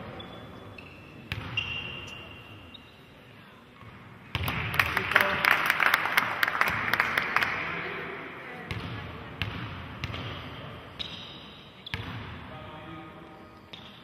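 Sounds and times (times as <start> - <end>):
sharp claps: 4.4 - 7.7.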